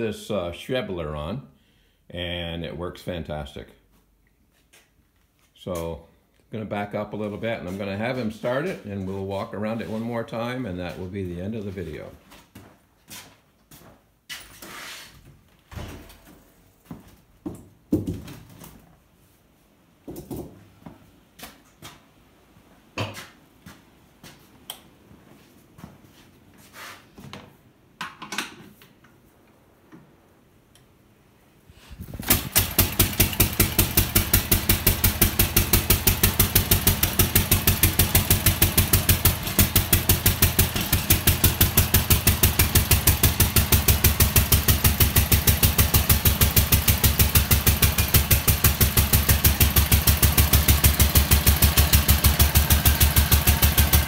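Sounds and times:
engine running: 32.2 - 54.0.

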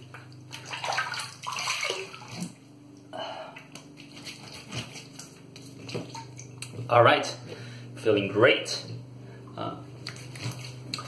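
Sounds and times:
water splashing at a sink: 0.0 - 2.6, 3.6 - 6.8, 10.1 - 11.0.

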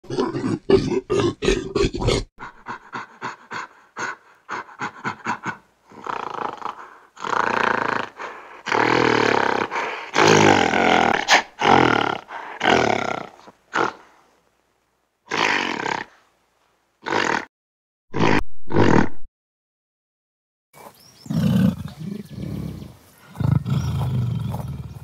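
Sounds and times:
gorilla grunting: 0.0 - 14.1, 17.0 - 17.5.

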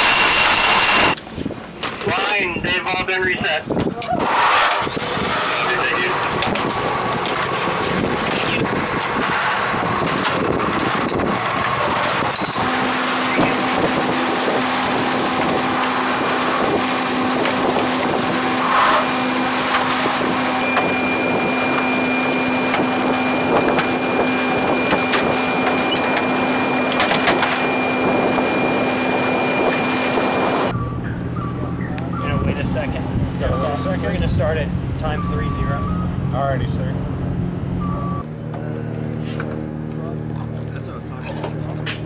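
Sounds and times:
steady machine drone: 0.0 - 3.6, 4.2 - 42.0.

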